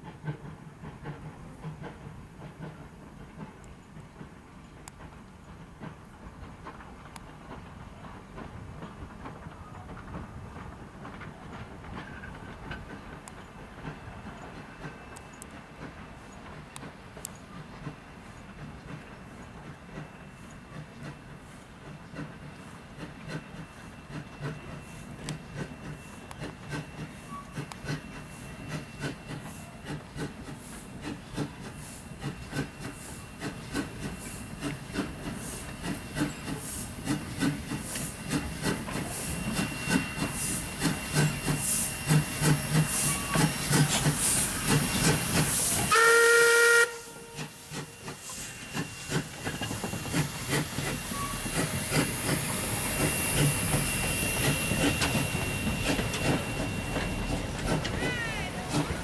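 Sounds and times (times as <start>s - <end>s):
steam locomotive exhaust beats: 0.0s - 59.0s
steam locomotive whistle chord: 45.8s - 48.1s.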